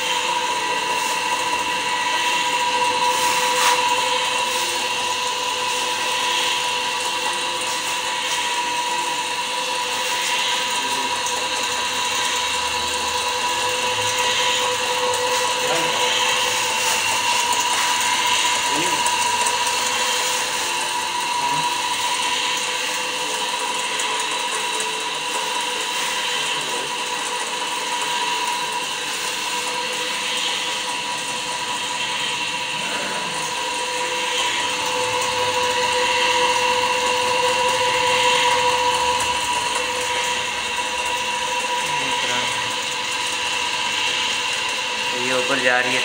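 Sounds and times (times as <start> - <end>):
water pump motor whining: 0.0 - 46.0.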